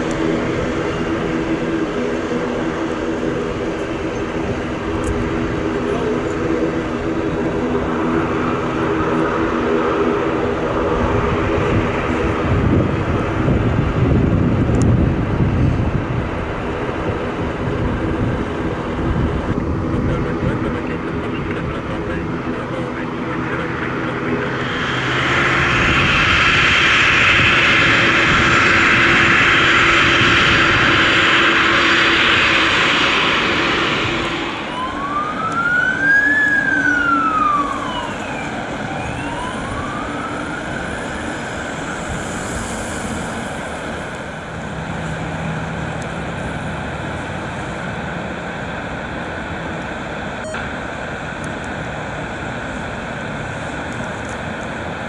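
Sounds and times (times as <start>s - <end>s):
jet engines whining: 0.0s - 55.0s
turboprop drone: 0.0s - 55.0s
fire engine siren wailing: 17.2s - 42.8s.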